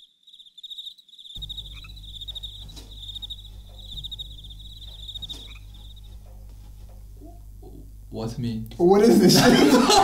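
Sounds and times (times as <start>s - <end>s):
cricket chirping: 0.0s - 8.4s
low background hum: 1.4s - 10.0s.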